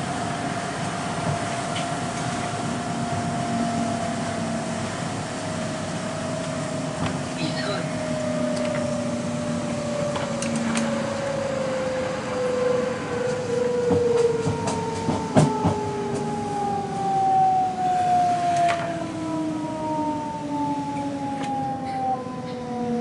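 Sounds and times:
steady rumble inside carriage: 0.0s - 23.0s
train motors whining: 0.0s - 23.0s
wheels clicking over track: 10.0s - 11.3s.

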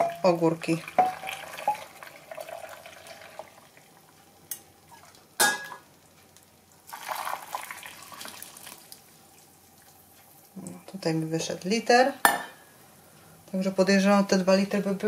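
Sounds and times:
water pouring and splashing: 0.7s - 3.7s, 6.9s - 9.0s.

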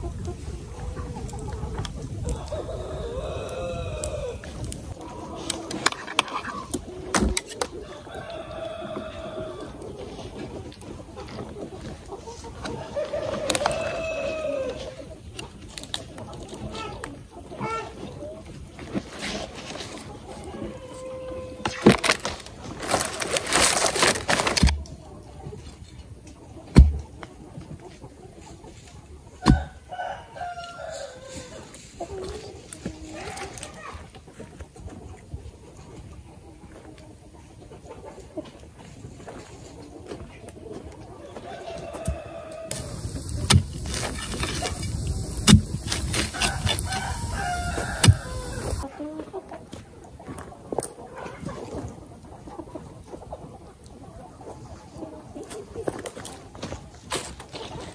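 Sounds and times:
chickens clucking: 0.0s - 57.9s
rooster crowing: 2.4s - 4.4s, 7.8s - 9.7s, 12.8s - 14.9s, 29.5s - 31.5s, 41.4s - 43.4s, 46.2s - 48.8s
rustling noise: 18.4s - 20.4s, 21.6s - 26.0s, 42.7s - 48.9s
sharp knocks with dull thud: 26.8s - 27.0s
steady hiss: 42.7s - 48.8s.

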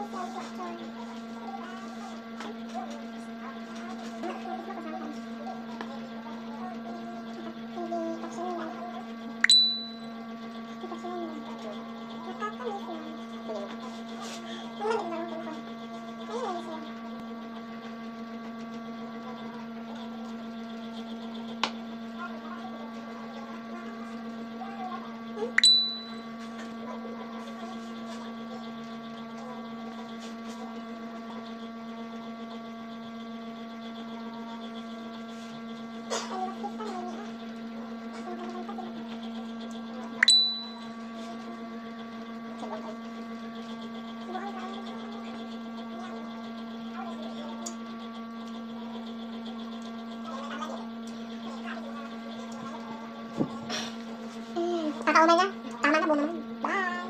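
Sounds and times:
electrical hum: 0.0s - 57.0s
sharp ringing clicks: 9.4s - 10.2s, 25.6s - 26.3s, 40.2s - 40.9s.

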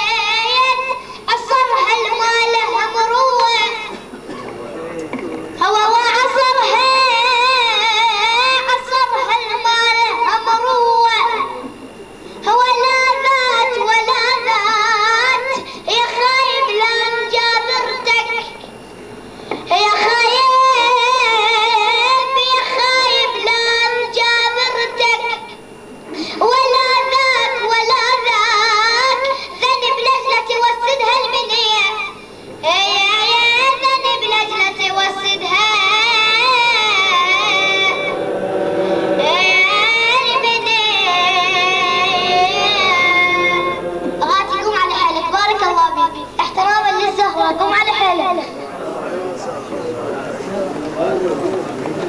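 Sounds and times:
child singing unaccompanied: 0.0s - 4.0s, 5.6s - 11.6s, 19.7s - 25.5s, 26.4s - 38.1s, 39.2s - 48.5s.

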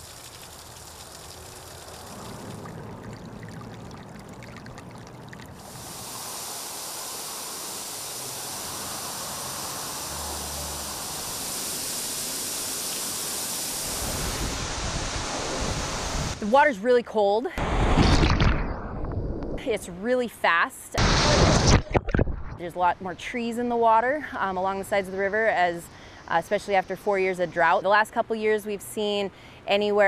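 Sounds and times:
waterfall splashing into pool: 0.0s - 3.8s, 5.5s - 16.4s, 21.0s - 22.3s.

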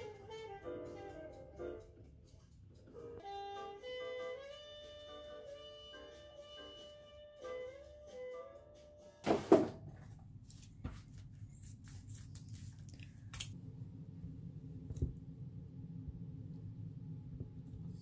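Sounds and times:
loud knock: 9.3s - 9.8s
steady low hum: 9.8s - 18.0s.

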